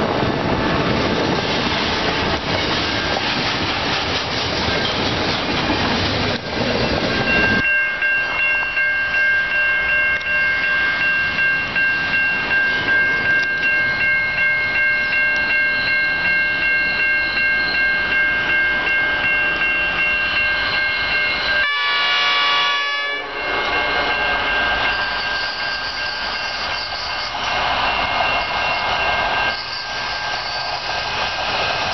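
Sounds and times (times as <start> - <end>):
high ringing tone: 6.8 - 31.0
locomotive horn: 21.6 - 24.7.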